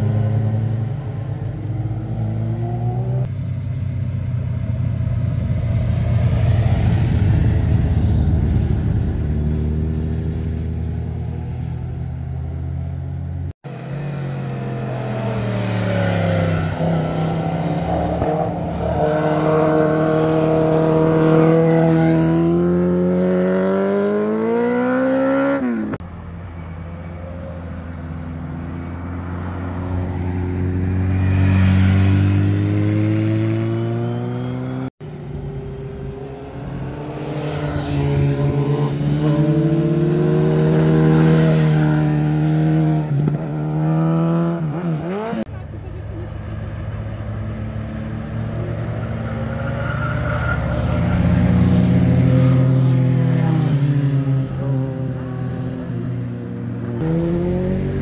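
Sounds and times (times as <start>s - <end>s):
motorcycle engines accelerating: 13.7s - 26.0s, 28.6s - 58.0s.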